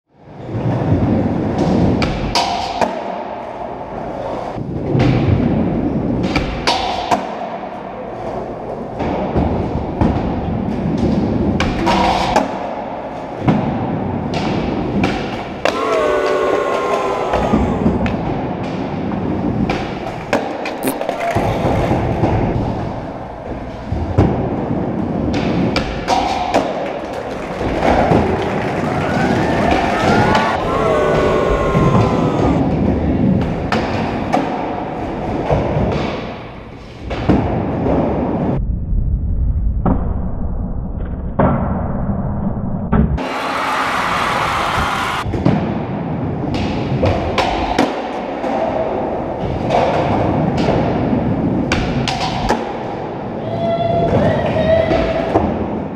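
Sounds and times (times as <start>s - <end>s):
skateboard wheels rolling on concrete: 21.0s - 30.8s.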